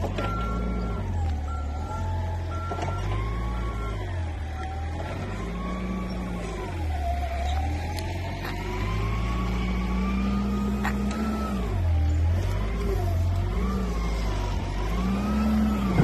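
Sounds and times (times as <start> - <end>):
reversing alarm beeping: 0.0 - 12.3
forklift engine running: 0.0 - 16.0.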